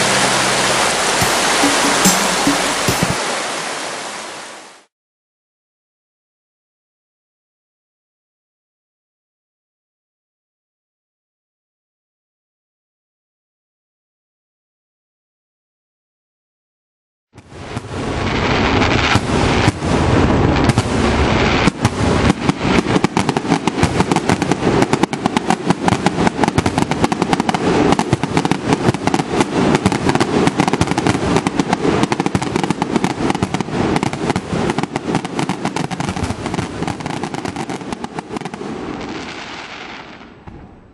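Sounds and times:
fireworks bangs and crackling: 0:00.0 - 0:03.2, 0:17.4 - 0:40.9
heavy fireworks booms: 0:17.4 - 0:40.9.

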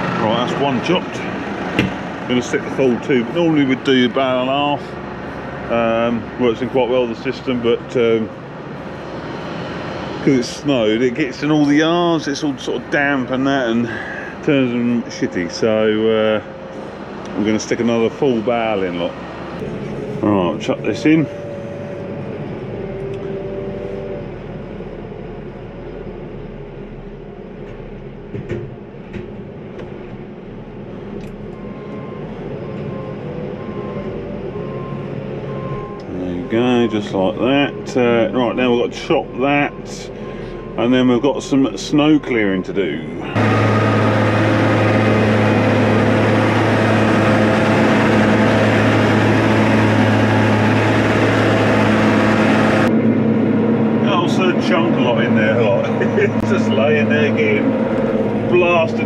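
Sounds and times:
diesel engine running: 0:00.0 - 0:59.0
hydraulic whine: 0:00.0 - 0:59.0
straw rushing through blower: 0:43.2 - 0:59.0.

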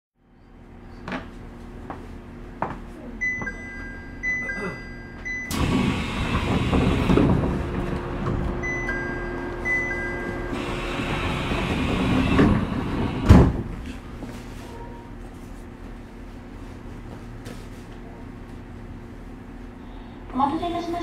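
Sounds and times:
two-note electronic chime: 0:03.2 - 0:05.5, 0:08.6 - 0:10.5
steady rumbling noise: 0:05.5 - 0:17.4.

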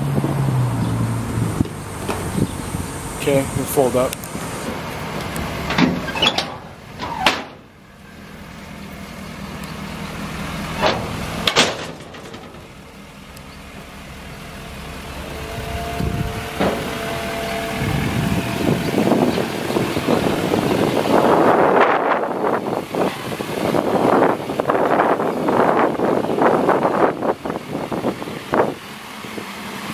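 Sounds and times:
wind on microphone: 0:00.0 - 0:03.6, 0:15.4 - 0:28.8
metal clanks: 0:05.6 - 0:07.7, 0:10.8 - 0:12.9
hydraulic pump hum: 0:13.7 - 0:25.0.

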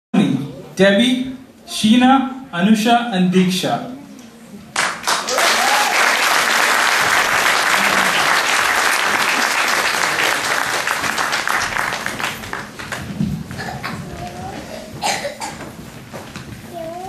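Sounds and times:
audience applause: 0:04.8 - 0:13.8.

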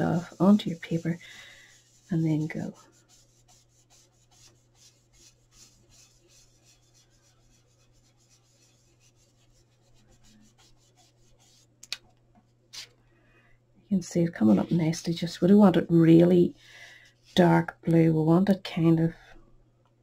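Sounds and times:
brush rubbing on cardstock: 0:00.0 - 0:11.8, 0:14.4 - 0:16.3.

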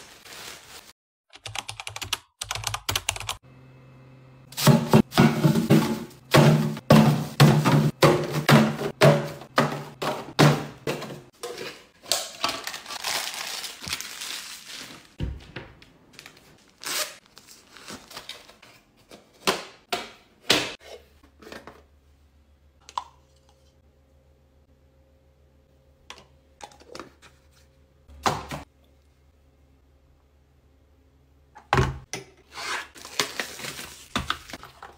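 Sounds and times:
plastic crinkling: 0:12.5 - 0:15.2.

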